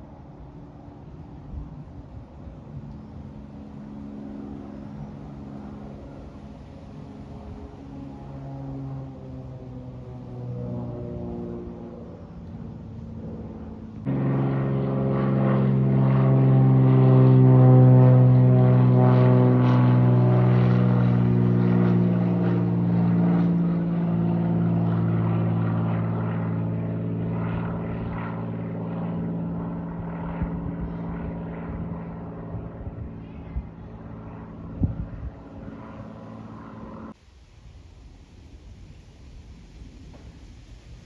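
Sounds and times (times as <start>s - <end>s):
propeller airplane drone: 0.0s - 41.0s.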